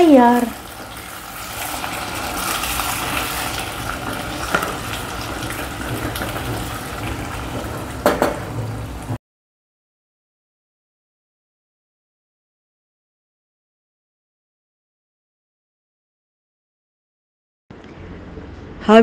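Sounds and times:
ghee sizzling: 0.0 - 9.2
knocks against pan: 8.0 - 8.5.

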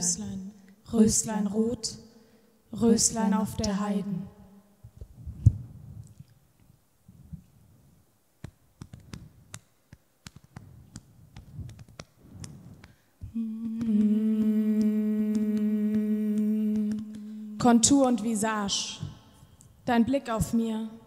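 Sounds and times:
woman humming a low note: 13.3 - 18.1.

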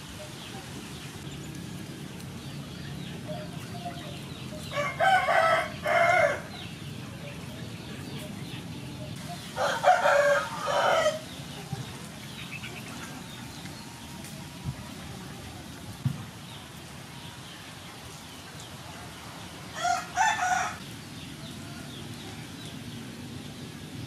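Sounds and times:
rooster crowing: 4.7 - 6.5, 9.6 - 11.2, 19.8 - 20.8.

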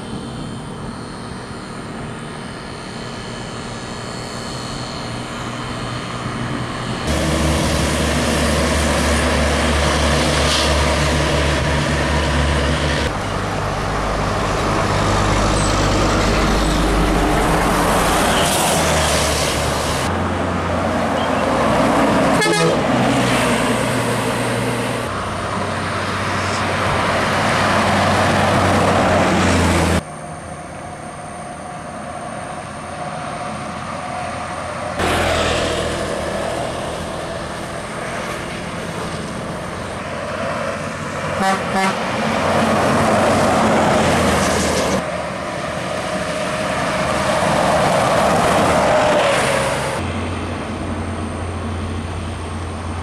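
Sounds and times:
buses driving past: 0.0 - 53.0
tyre and road noise: 0.0 - 53.0
vehicle horns sounding: 22.3 - 22.9, 41.4 - 42.0.

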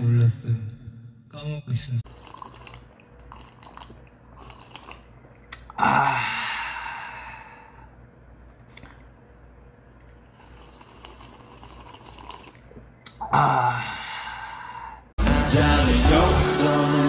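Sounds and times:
man slurping from a mug: 2.0 - 5.8, 10.2 - 13.4
man exhaling ahh: 13.3 - 15.1.

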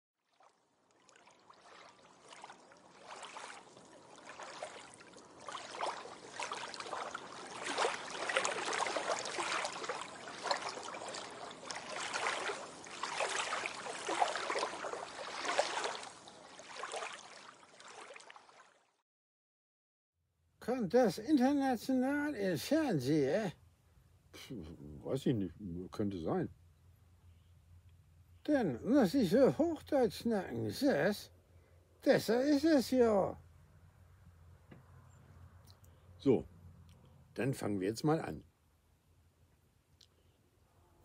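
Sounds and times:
gurgling bubbling water: 0.9 - 18.2.

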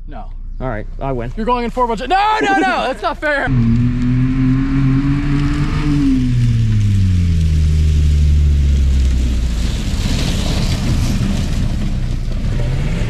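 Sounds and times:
pickup truck engines running hard: 0.6 - 13.0.

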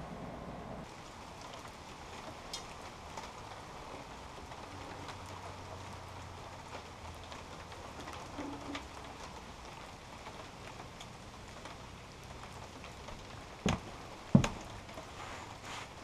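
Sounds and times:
low hum: 0.0 - 0.9
faint hiss: 0.0 - 16.0.

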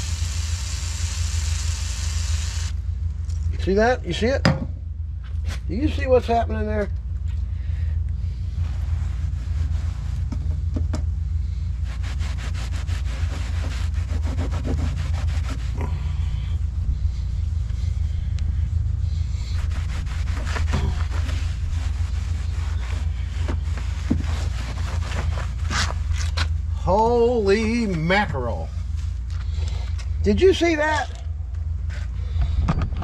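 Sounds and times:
steady low rumble: 0.0 - 33.0
rag scrubbing on metal deck: 11.8 - 16.4, 19.1 - 26.0.

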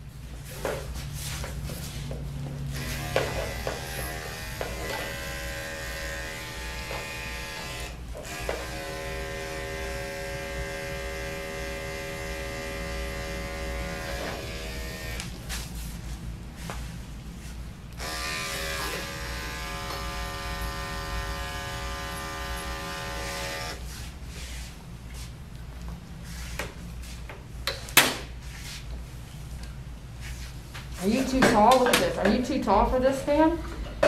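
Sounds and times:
electric dog clippers buzzing: 2.7 - 15.4, 18.0 - 23.8.

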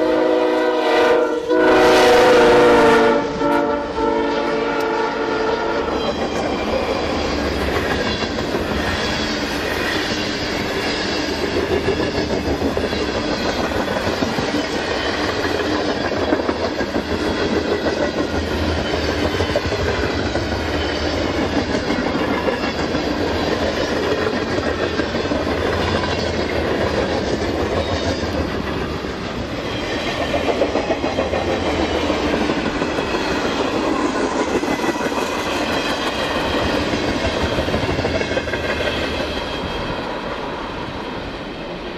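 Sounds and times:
train wheels rumbling on rail: 0.0 - 41.9
clickety-clack over rail joints: 4.7 - 41.9.

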